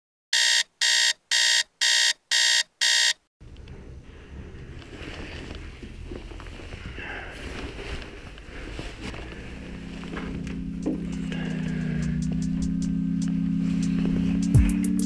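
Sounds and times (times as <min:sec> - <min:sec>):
alarm clock beeping: 0:00.4 - 0:03.2
room noise rustle and rumble: 0:03.4 - 0:11.7.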